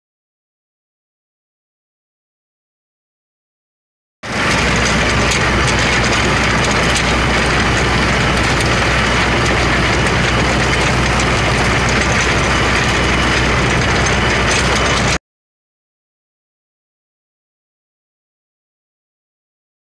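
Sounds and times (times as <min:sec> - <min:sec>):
tractor engine idling: 0:04.2 - 0:15.2.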